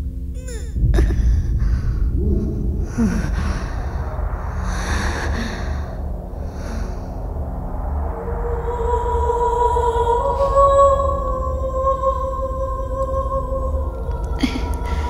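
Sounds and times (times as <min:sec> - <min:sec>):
low rumble: 0:00.0 - 0:15.0
heavy laboured breathing: 0:00.4 - 0:07.9, 0:14.2 - 0:15.0.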